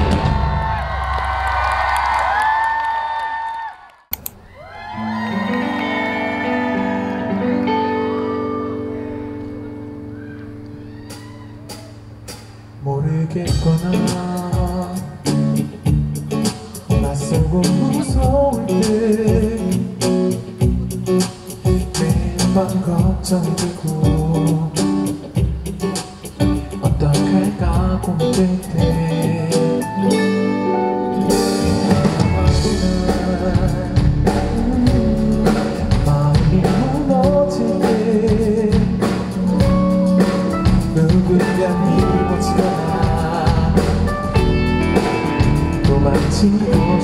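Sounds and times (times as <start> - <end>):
pop-rock band playing: 0.0 - 1.8, 5.0 - 47.0
man singing lead vocal: 12.8 - 15.7, 16.4 - 20.4, 21.5 - 25.4, 26.6 - 39.6, 40.6 - 47.0.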